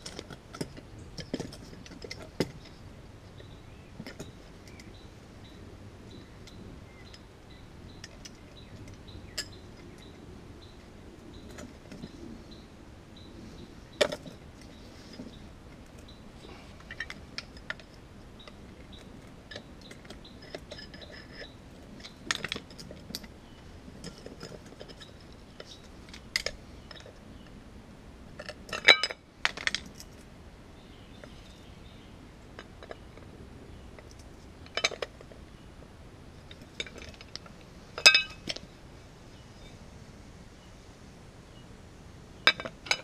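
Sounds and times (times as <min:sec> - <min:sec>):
metal parts clinking: 0:38.0 - 0:38.6.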